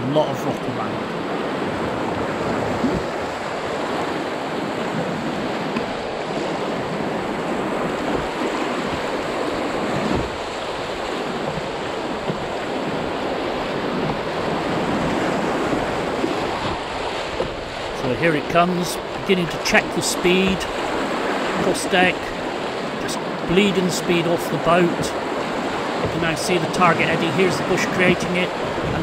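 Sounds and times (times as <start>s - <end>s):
white-water rapids rushing: 0.0s - 29.0s.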